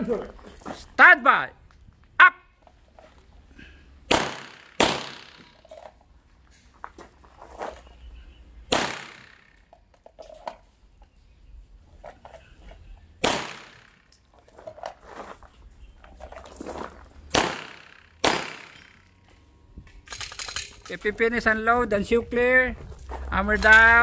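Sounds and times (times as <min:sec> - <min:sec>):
pistol shots: 0:04.1 - 0:05.6, 0:08.7 - 0:09.6, 0:13.2 - 0:14.0, 0:17.3 - 0:19.0.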